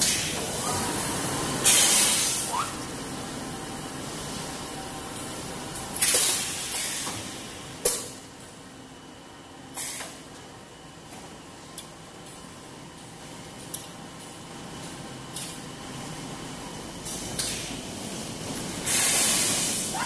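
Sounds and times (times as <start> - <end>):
low machine hum: 0.0 - 20.0
compressed air hissing: 1.6 - 2.7, 18.8 - 20.0.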